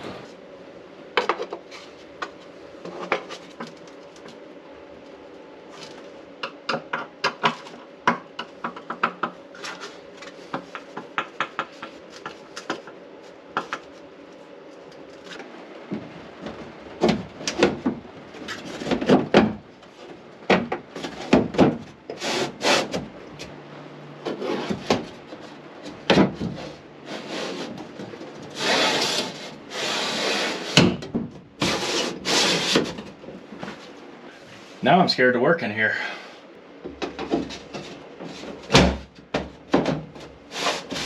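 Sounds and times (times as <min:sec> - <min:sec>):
wood scraping against frame: 0:24.2 - 0:30.9, 0:31.6 - 0:34.8, 0:40.5 - 0:41.0.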